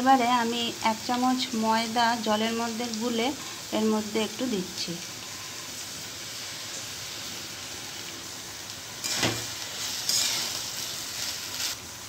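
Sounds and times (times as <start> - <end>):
vegetables sizzling in a pan: 0.0 - 12.0
spatula knocking and scraping pan: 9.0 - 9.5.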